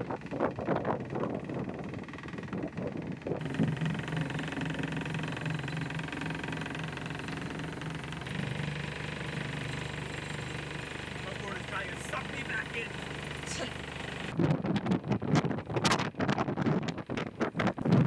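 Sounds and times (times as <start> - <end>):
diesel engine running: 0.0 - 14.4.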